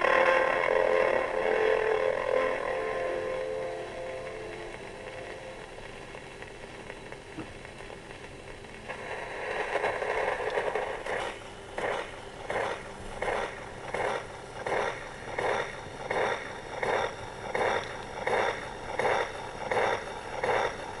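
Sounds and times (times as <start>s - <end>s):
record surface hiss: 0.0s - 21.0s.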